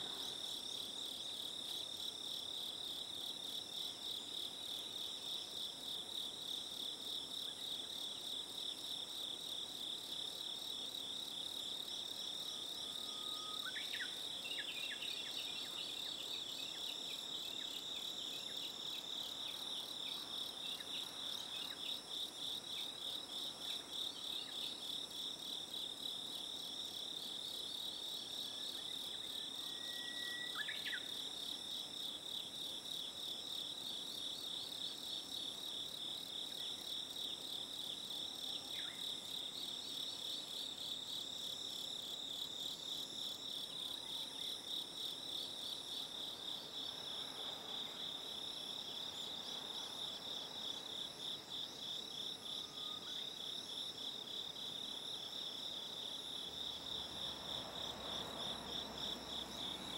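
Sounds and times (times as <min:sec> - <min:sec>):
brief different insect call: 0:12.4 - 0:22.0, 0:28.5 - 0:31.3.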